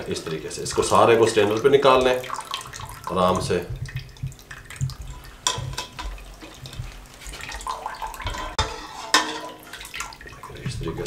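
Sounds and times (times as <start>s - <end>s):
whey sloshing and dripping: 0.0s - 11.0s
utensil clinking on metal pot: 5.1s - 6.8s, 7.6s - 10.0s.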